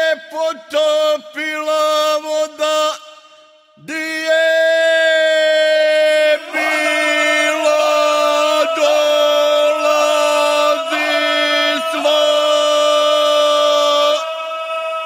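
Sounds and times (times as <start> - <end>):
group singing in close harmony: 5.6 - 15.0.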